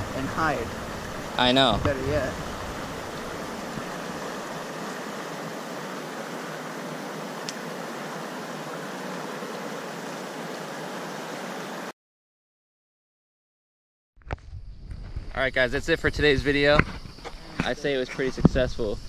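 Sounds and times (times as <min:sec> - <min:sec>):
water rushing from spillway: 0:00.0 - 0:11.9.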